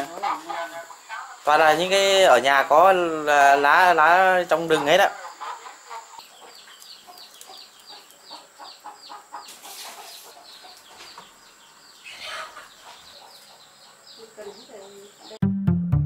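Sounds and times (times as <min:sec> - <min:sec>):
chicks peeping: 0:03.5 - 0:15.4.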